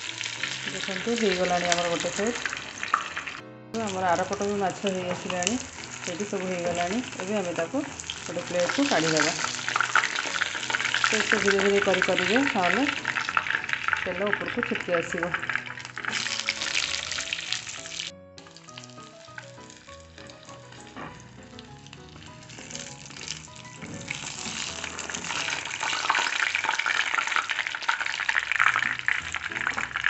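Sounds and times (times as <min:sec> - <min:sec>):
fish sizzling in hot oil: 0:00.0 - 0:30.0
spatula turning fish: 0:00.0 - 0:30.0.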